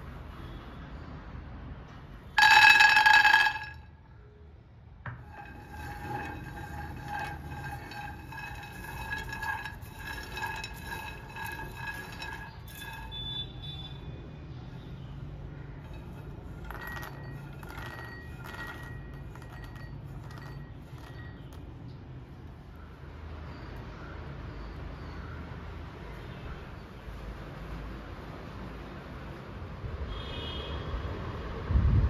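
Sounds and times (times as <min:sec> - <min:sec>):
peanuts clattering into metal pan: 0:02.4 - 0:03.8, 0:05.3 - 0:13.5, 0:15.8 - 0:21.2
peanuts rattling around pan: 0:02.4 - 0:03.8, 0:05.3 - 0:13.6, 0:15.8 - 0:21.4.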